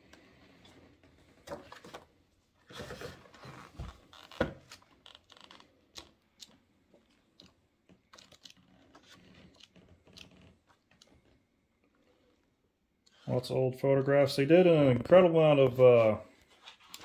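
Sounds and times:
book pages rustling and flapping: 0.3s - 11.4s, 16.4s - 17.0s.

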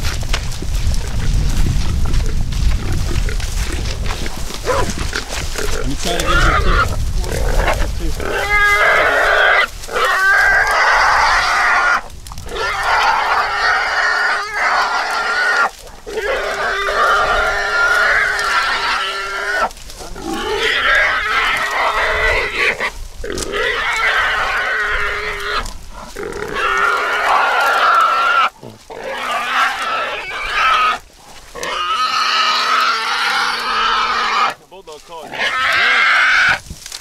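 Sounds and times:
hog squealing loudly: 5.8s - 31.0s, 31.6s - 34.6s, 35.2s - 36.6s.

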